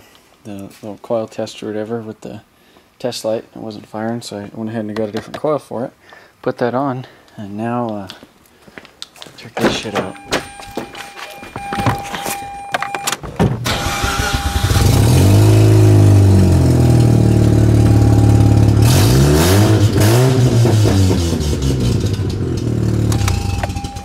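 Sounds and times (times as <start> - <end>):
clicks and thunks: 9.6 - 13.7
rotary engine starting and revving: 13.7 - 23.3.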